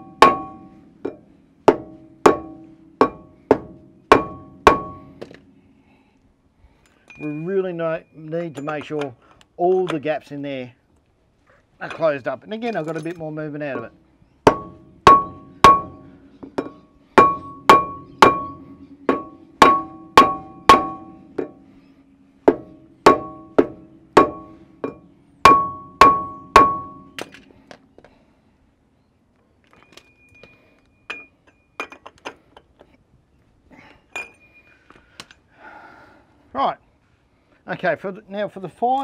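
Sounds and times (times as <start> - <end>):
rubber mallet beating on metal: 0.0 - 5.1, 14.5 - 21.6, 22.5 - 27.1.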